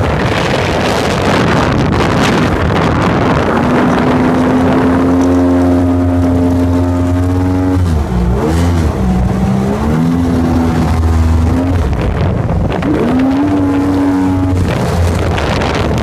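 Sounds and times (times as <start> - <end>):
boat engine running: 0.0 - 16.0
rushing noise: 0.0 - 16.0.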